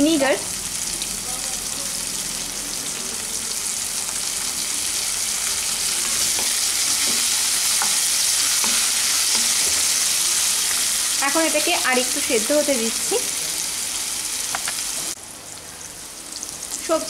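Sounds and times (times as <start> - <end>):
vegetables sizzling in oil: 0.0 - 17.0
wooden spatula scraping pan: 6.0 - 10.0.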